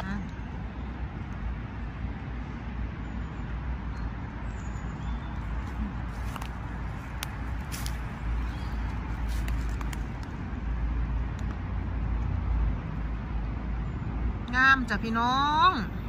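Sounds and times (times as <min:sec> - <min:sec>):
low outdoor rumble: 0:00.0 - 0:16.0
dry leaves and twigs crackling: 0:05.3 - 0:10.6.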